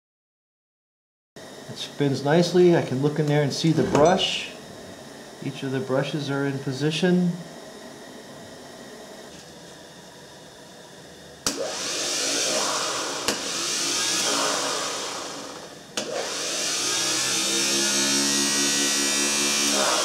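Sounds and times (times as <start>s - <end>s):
electric motor whine: 7.6s - 20.0s.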